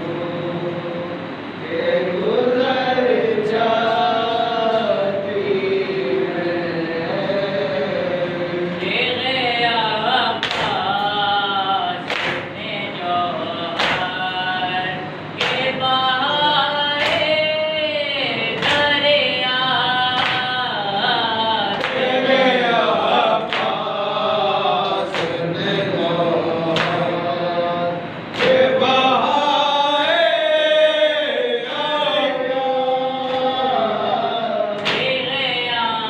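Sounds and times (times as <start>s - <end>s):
group singing along: 0.0s - 36.0s
man singing a lament: 1.7s - 36.0s.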